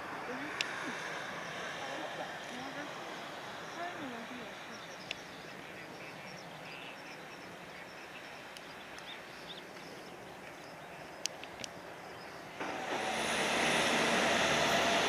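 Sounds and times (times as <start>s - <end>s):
outdoor background hiss: 0.0s - 15.0s
faint bird chirps: 3.4s - 12.6s.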